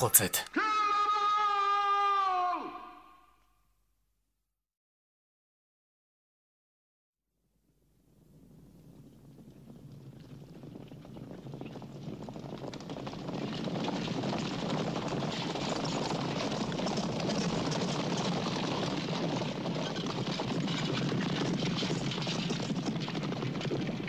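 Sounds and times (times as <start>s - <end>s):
horses galloping: 8.8s - 24.0s.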